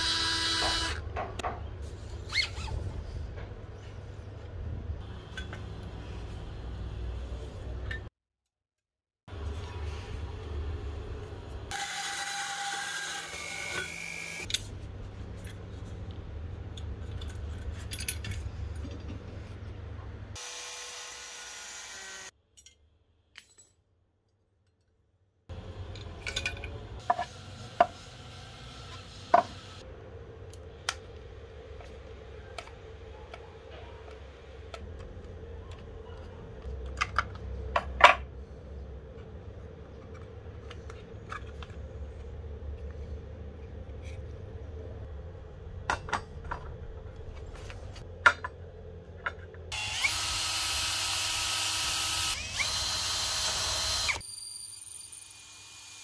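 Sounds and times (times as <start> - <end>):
cordless drill boring into steel: 0.0 - 1.0, 49.7 - 56.0.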